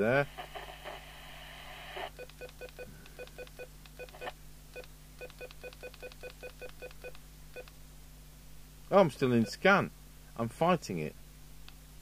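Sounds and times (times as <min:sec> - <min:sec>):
radio speaker hiss: 0:00.0 - 0:02.1.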